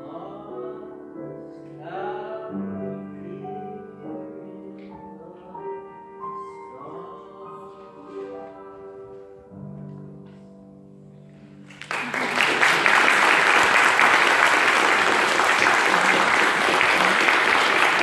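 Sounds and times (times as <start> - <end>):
grand piano chords: 0.0 - 18.0
audience applause: 11.7 - 18.0.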